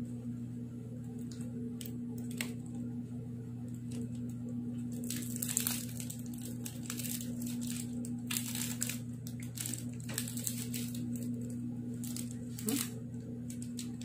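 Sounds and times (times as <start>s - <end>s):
steady low hum: 0.0s - 14.0s
foil wrapper crinkling: 3.7s - 14.0s.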